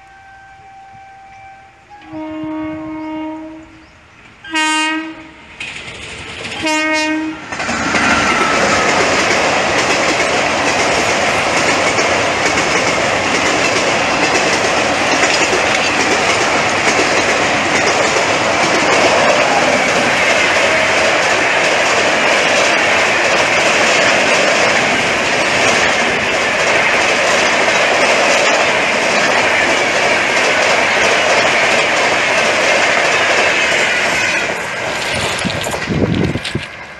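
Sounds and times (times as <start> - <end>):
locomotive air horn blasts: 0.0 - 5.6, 6.6 - 7.5
train wheels on rails: 1.3 - 36.9.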